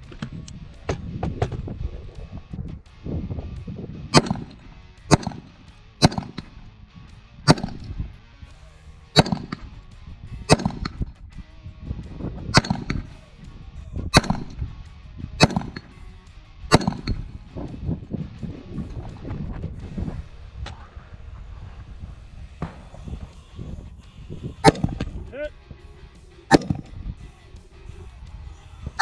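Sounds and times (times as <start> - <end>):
low rumble: 0.0 - 28.9
rifle shots: 4.1 - 6.6, 7.5 - 8.0, 9.1 - 9.8, 10.5 - 11.1, 12.6 - 13.2, 14.2 - 14.7, 15.4 - 16.0, 16.7 - 17.4, 22.6 - 23.5, 24.6 - 25.2, 26.5 - 27.0.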